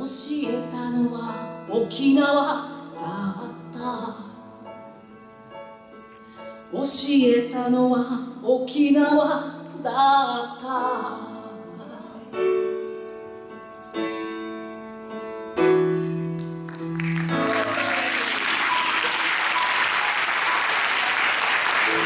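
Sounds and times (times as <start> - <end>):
piano chords ringing: 9.3 - 22.0
audience applauding: 16.4 - 22.0.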